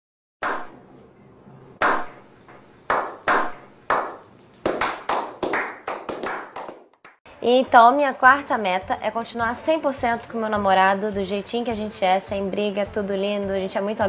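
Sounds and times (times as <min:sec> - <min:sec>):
group clapping: 0:01.8 - 0:02.2, 0:02.9 - 0:07.2.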